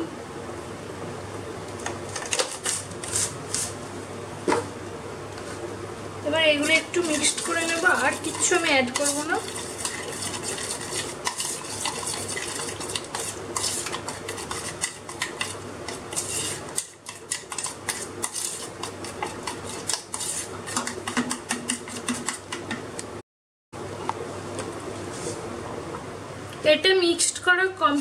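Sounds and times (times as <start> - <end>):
metal spoon stirring thick paste: 6.6 - 22.8.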